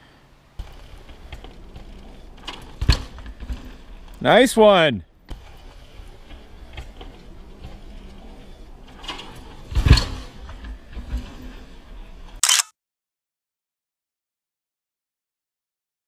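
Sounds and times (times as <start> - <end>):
mountain bike riding rattle: 0.6 - 4.2, 5.2 - 12.4.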